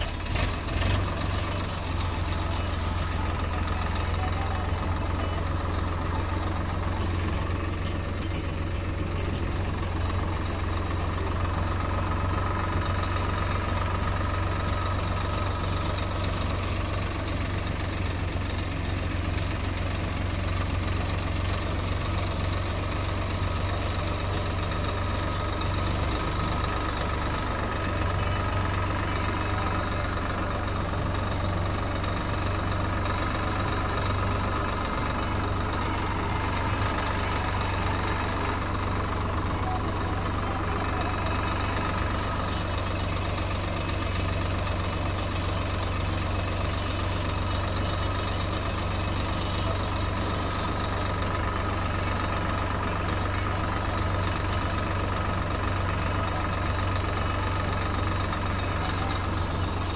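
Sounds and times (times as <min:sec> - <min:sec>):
diesel tractor engine running: 0:00.0 - 0:59.9.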